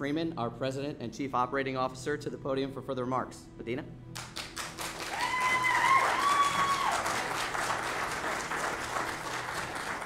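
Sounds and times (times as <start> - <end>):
audience applauding: 4.2 - 10.0
high rising whoops: 5.1 - 7.3.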